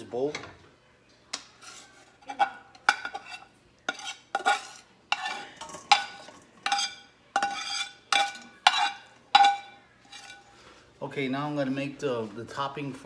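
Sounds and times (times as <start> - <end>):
metal spatula scraping skillet: 1.3 - 10.9.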